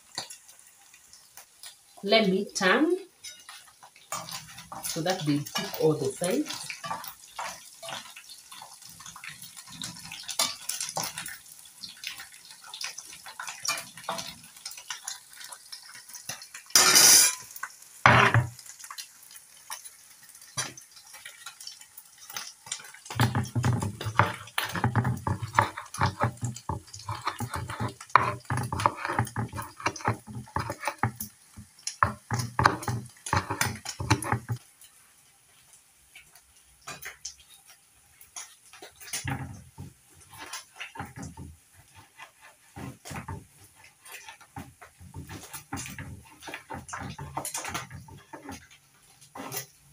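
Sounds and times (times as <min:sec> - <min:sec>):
oil sizzling: 0:00.0 - 0:49.9
spoon scraping frying pan: 0:03.2 - 0:11.4, 0:12.0 - 0:19.0, 0:22.3 - 0:34.6, 0:38.4 - 0:49.9
knife chopping on wooden board: 0:23.2 - 0:31.2, 0:32.0 - 0:34.6.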